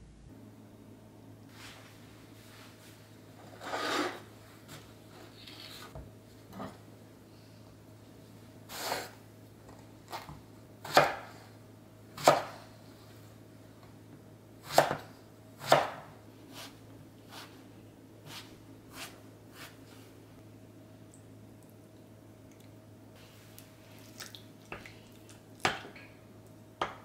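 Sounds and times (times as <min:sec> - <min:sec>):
knife chopping on wooden board: 0:10.2 - 0:11.3, 0:12.2 - 0:12.6, 0:14.7 - 0:16.7.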